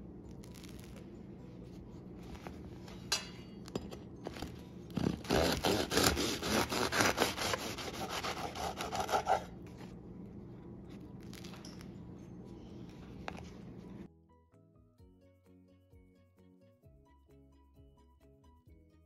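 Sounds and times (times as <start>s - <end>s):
knife sawing through bread crust: 4.9s - 9.6s.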